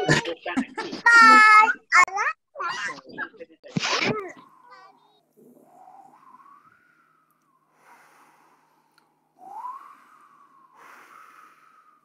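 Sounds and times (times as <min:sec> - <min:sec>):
breathy whistling: 0:04.2 - 0:12.0.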